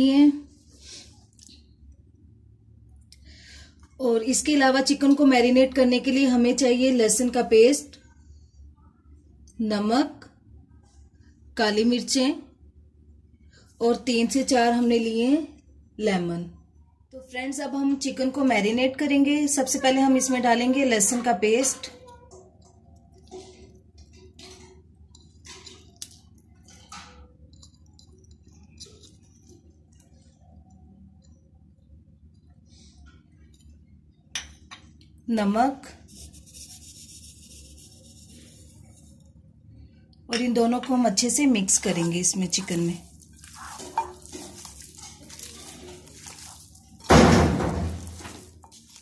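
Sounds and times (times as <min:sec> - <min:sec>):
faint low hum: 0:21.8 - 0:49.0
soft wet squishes: 0:22.6 - 0:34.0, 0:41.2 - 0:47.1, 0:47.9 - 0:49.0
wet squelching of raw chicken: 0:41.6 - 0:49.0.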